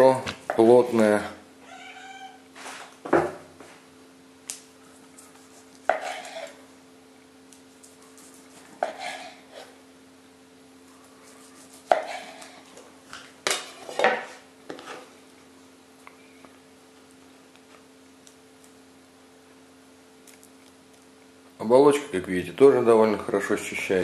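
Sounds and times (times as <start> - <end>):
faint steady hum: 0.0 - 24.0
knife scraping: 4.9 - 6.6, 7.9 - 9.8, 11.1 - 12.8, 13.5 - 15.1.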